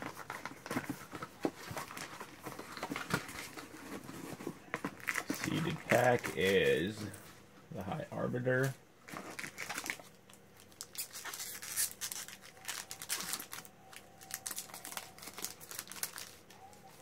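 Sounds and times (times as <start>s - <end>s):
cards rustling: 0.0s - 7.2s, 8.6s - 17.0s
foil wrapper crinkling: 9.1s - 17.0s.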